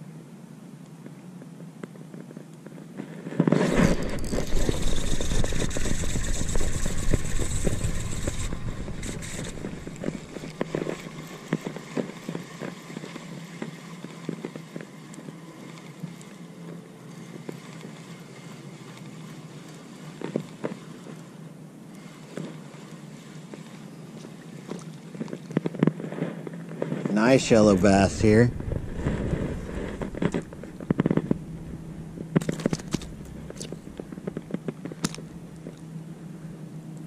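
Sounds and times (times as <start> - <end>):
loud burst of noise: 3.5 - 10.9, 27.1 - 34.6
fishing reel being cranked: 3.6 - 16.4, 17.1 - 21.3.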